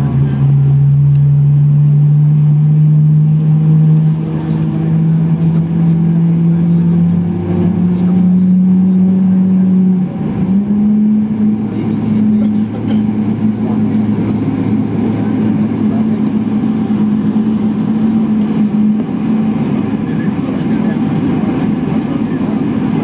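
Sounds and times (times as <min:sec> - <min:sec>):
aircraft engine hum: 0:00.0 - 0:23.0.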